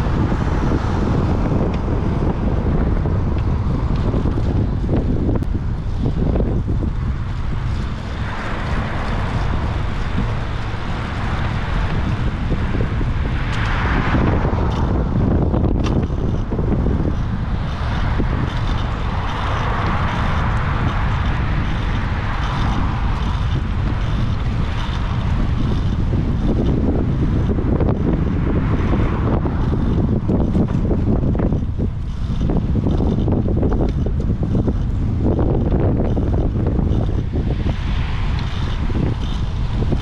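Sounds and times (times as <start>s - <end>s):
tyres rumbling on road: 0.0s - 40.0s
wind buffeting microphone: 0.0s - 40.0s.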